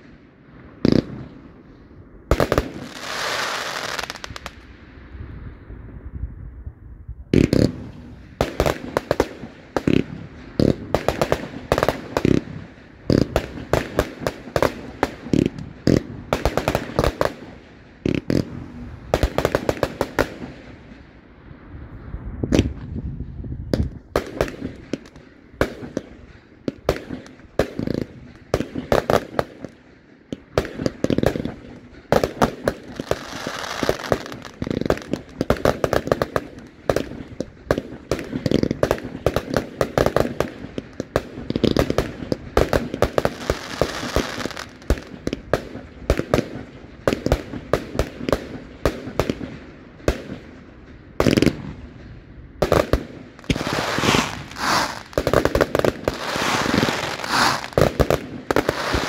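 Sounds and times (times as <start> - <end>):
firework launches and bursts: 2.3 - 5.7, 52.7 - 59.0.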